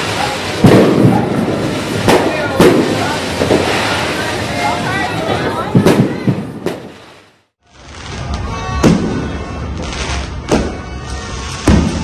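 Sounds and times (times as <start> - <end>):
fireworks booming: 0.0 - 12.0
music: 7.8 - 12.0.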